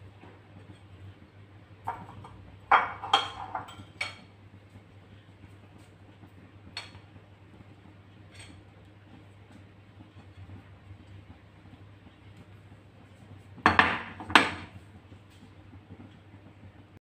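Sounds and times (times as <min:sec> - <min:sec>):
steady low hum: 0:00.0 - 0:17.0
kitchenware clinking: 0:01.8 - 0:04.3, 0:13.7 - 0:14.7.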